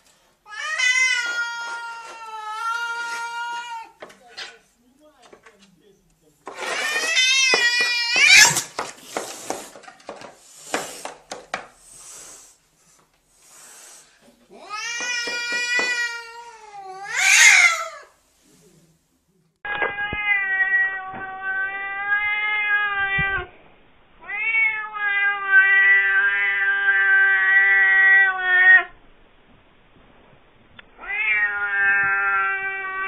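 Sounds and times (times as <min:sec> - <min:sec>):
cat yowling: 0:00.5 - 0:04.0, 0:06.6 - 0:08.7, 0:14.6 - 0:18.1, 0:19.7 - 0:23.5, 0:24.2 - 0:28.9, 0:31.0 - 0:33.0
cat hissing: 0:11.8 - 0:12.6, 0:13.3 - 0:18.2.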